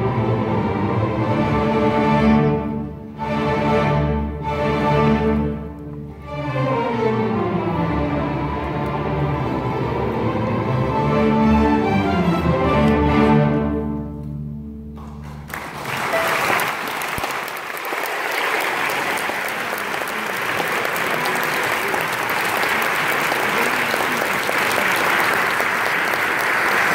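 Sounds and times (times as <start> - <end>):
audience applause: 15.0 - 26.9.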